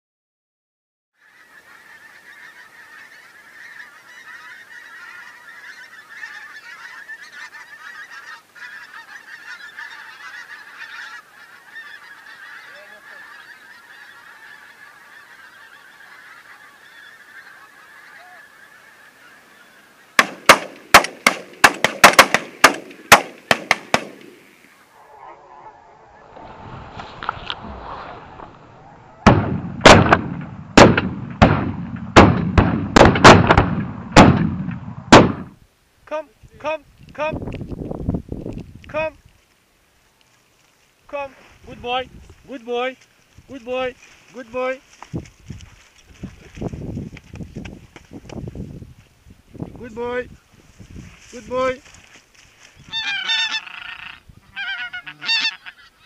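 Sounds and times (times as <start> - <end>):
geese honking: 1.2 - 30.0, 52.8 - 56.0
shotgun shots: 20.2 - 24.4, 29.2 - 35.6.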